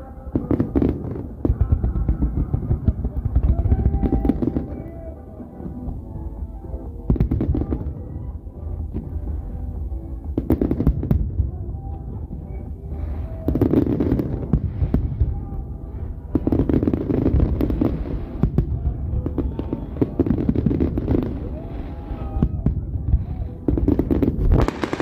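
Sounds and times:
fireworks bursts and crackles: 0:00.0 - 0:25.0.

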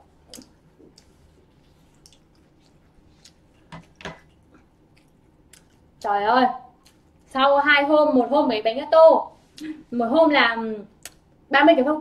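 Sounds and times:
person chewing: 0:00.0 - 0:06.1, 0:06.7 - 0:07.3, 0:11.0 - 0:11.3.

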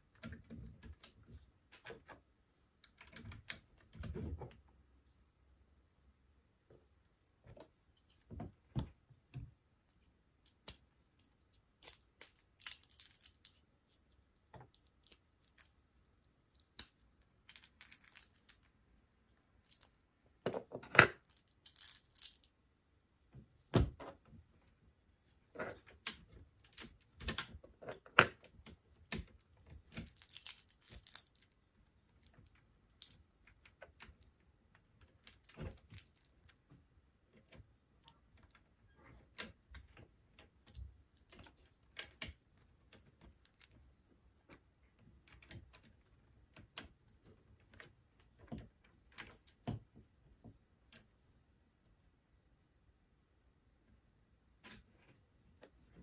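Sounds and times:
loose plastic pieces rattling: 0:16.5 - 0:18.8, 0:25.6 - 0:36.6
plastic bricks clicking together: 0:25.6 - 0:36.6.

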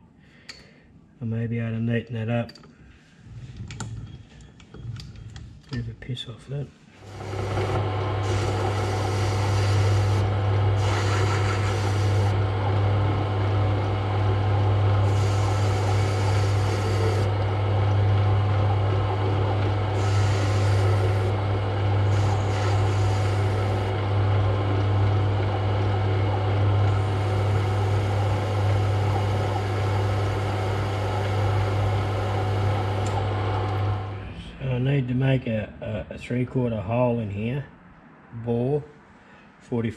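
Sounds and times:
metal lathe humming: 0:07.0 - 0:34.3
lathe tool cutting hiss: 0:07.1 - 0:12.4, 0:15.0 - 0:17.3, 0:19.9 - 0:21.4, 0:22.1 - 0:23.9, 0:26.9 - 0:33.2.

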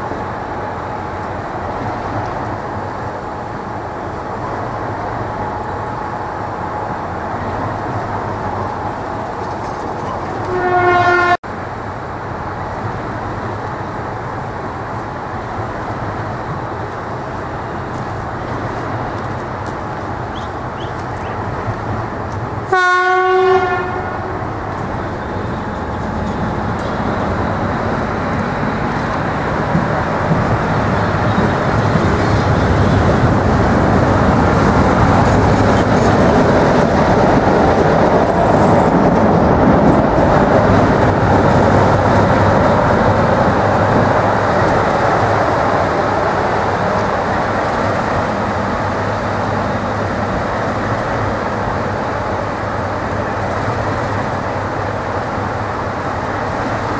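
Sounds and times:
wheels rolling on rails: 0:07.7 - 0:10.6, 0:24.6 - 0:56.9
locomotive horn: 0:10.4 - 0:11.4, 0:22.7 - 0:24.4
diesel locomotive engine running: 0:11.5 - 0:56.9.

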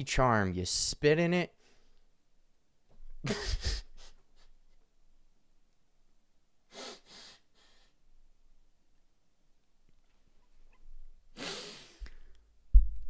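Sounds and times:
man stifling laughter: 0:03.2 - 0:04.6.

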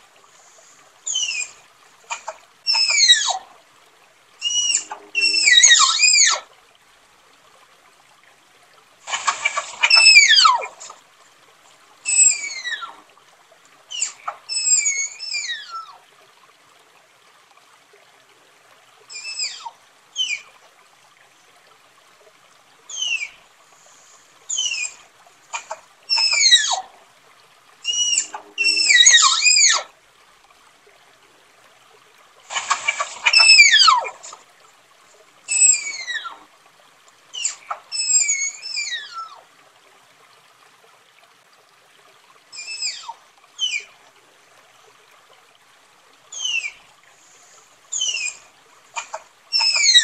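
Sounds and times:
tapir whistled squeals: 0:02.7 - 0:03.4, 0:04.4 - 0:06.4, 0:09.4 - 0:10.8, 0:12.1 - 0:12.9, 0:13.9 - 0:15.9, 0:24.5 - 0:25.0, 0:26.1 - 0:26.8, 0:27.9 - 0:29.9, 0:32.6 - 0:34.1, 0:35.5 - 0:36.4, 0:37.4 - 0:39.4, 0:42.6 - 0:43.9, 0:46.4 - 0:46.8, 0:47.9 - 0:48.4, 0:49.5 - 0:50.0.

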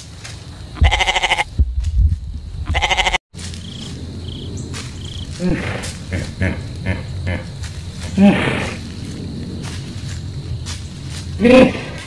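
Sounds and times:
goat bleating: 0:00.8 - 0:01.5, 0:02.7 - 0:03.2.

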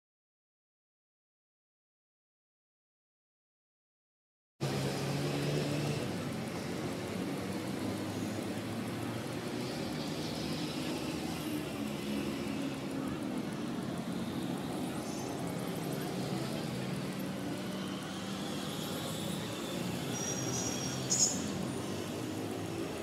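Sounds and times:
distant city traffic hum: 0:04.6 - 0:23.0.

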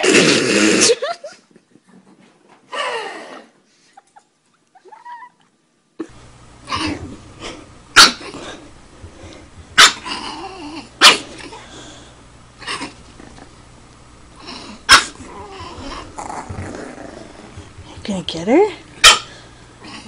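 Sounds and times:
puppy growling softly: 0:06.7 - 0:13.7, 0:14.3 - 0:18.1, 0:19.3 - 0:20.0
puppy yapping: 0:08.0 - 0:08.4, 0:09.8 - 0:11.5, 0:14.9 - 0:17.2, 0:19.0 - 0:19.3.

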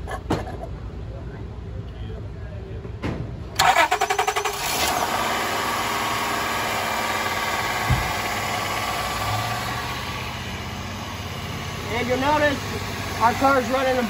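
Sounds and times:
car engine cranking and idling: 0:03.4 - 0:14.0
short thump: 0:07.8 - 0:08.2.

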